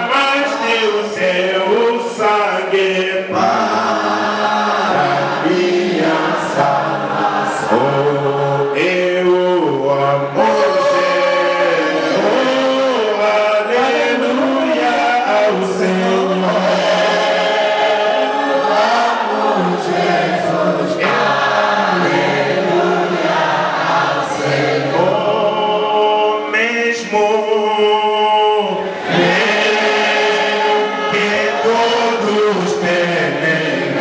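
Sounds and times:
congregation singing: 0.0s - 34.0s.

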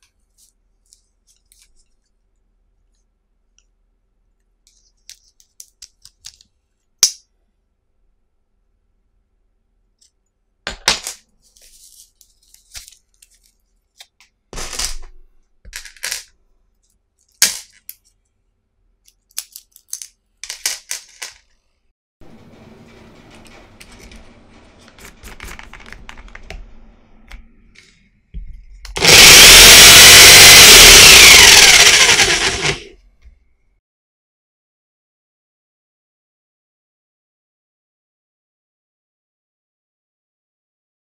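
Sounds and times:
rustling of plastic band: 0.0s - 3.2s, 11.3s - 14.4s.

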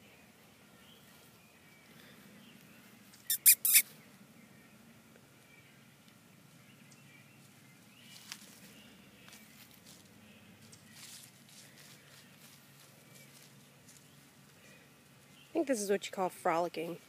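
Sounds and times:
high-pitched animal squeaks: 3.3s - 3.9s.

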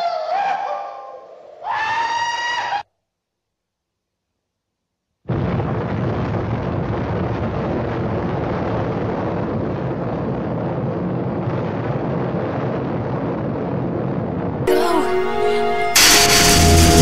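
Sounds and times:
explosion blast: 5.3s - 17.0s.

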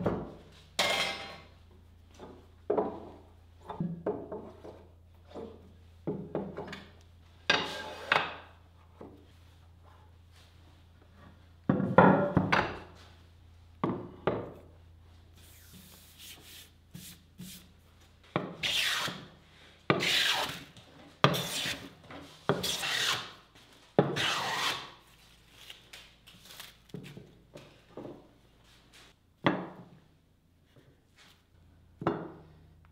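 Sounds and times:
hand plane rasping on wood: 18.6s - 19.2s, 20.0s - 20.6s, 21.3s - 21.9s, 22.5s - 23.3s, 24.2s - 24.9s.

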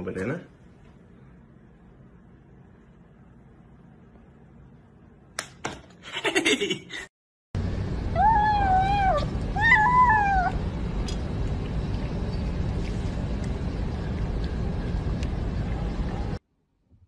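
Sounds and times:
low background rumble: 7.6s - 16.4s
kitten meowing: 8.2s - 10.6s.

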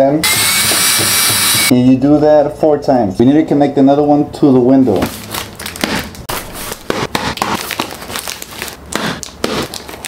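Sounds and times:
cardboard packaging crinkling and tearing: 5.0s - 10.0s.

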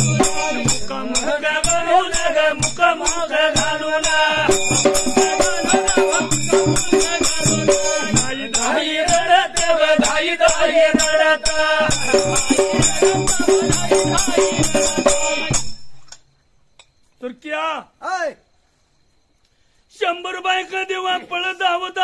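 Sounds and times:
men singing together: 0.0s - 15.7s
dhol drum beating: 0.0s - 15.8s
jingling hand cymbals: 0.0s - 16.1s.

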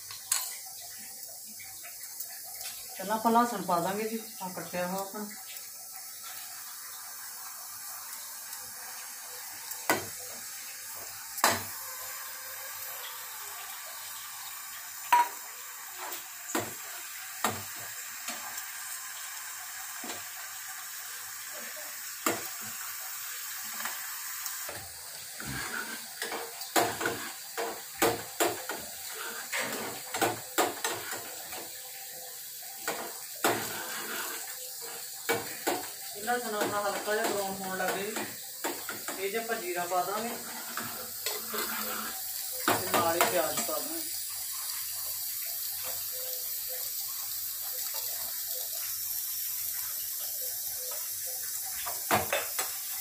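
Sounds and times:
garlic sizzling in hot oil: 0.0s - 53.0s
metal spoon scraping a pan: 25.4s - 31.6s, 32.8s - 35.9s, 40.2s - 43.8s.

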